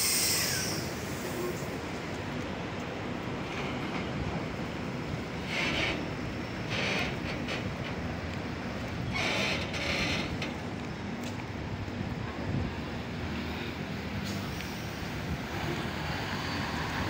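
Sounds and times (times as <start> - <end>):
brief hiss: 0.0 - 1.7
vehicle engine rumble: 0.0 - 17.0
wind noise on microphone: 11.6 - 13.2.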